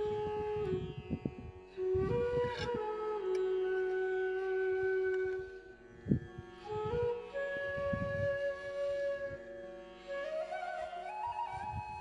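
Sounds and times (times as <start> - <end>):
flute-like wind instrument note: 1.8 - 5.8, 6.7 - 12.0.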